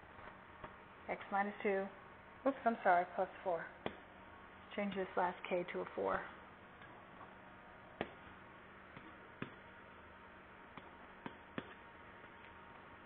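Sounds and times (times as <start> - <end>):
quiet steady hum: 0.0 - 13.0
stylus tapping on tablet: 10.7 - 11.8.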